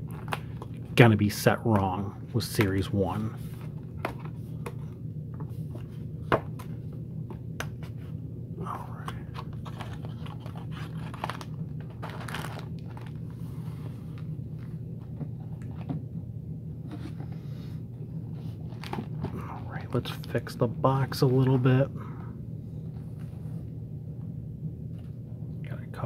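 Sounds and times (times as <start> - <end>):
cardboard crinkling and creaking: 9.3 - 16.0, 18.3 - 21.9
cardboard rustling tears: 9.6 - 12.9.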